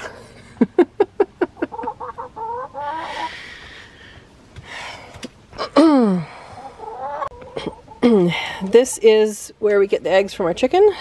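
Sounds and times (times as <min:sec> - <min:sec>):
hen cackling: 0:01.4 - 0:04.1, 0:05.6 - 0:08.7.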